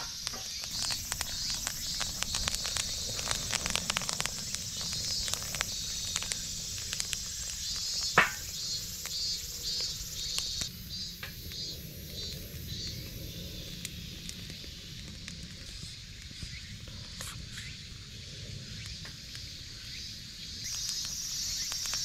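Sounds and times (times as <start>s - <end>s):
campfire crackling and popping: 0.0s - 22.0s
insects chirping trill: 0.0s - 22.0s.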